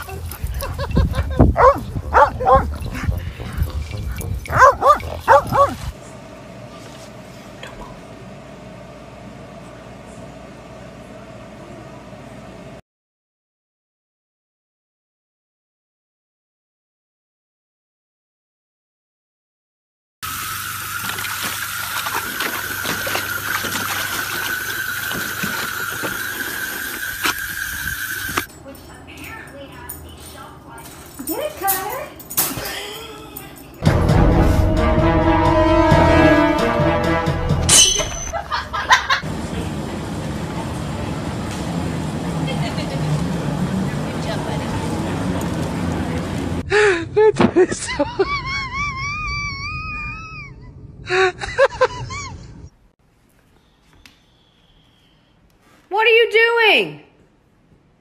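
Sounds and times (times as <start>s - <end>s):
low rumble: 0.2s - 6.0s
dog barking excitedly: 0.6s - 5.9s
hose water spraying: 20.2s - 28.5s
dog splashing in water: 20.9s - 27.4s.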